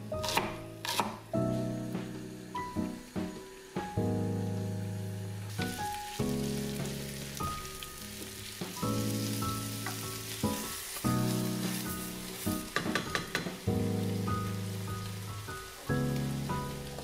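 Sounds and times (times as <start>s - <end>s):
background music with chords: 0.0s - 12.9s, 13.5s - 17.0s
leeks sizzling in a pan: 0.0s - 17.0s
wooden spoon knocking on pot: 12.6s - 13.6s.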